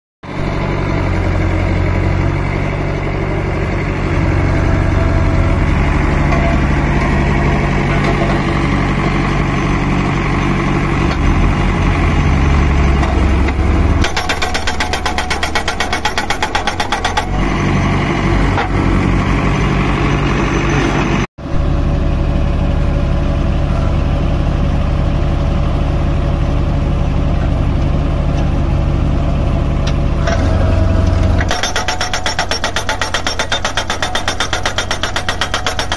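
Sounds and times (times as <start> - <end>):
tractor diesel engine running: 0.2 - 35.9
post driver hammering: 14.0 - 17.4, 31.4 - 35.9.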